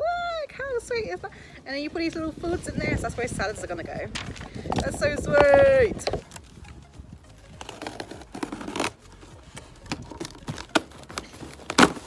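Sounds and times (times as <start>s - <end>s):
wooden objects knocking and scraping: 4.1s - 6.9s
cardboard box rustling: 7.3s - 12.0s.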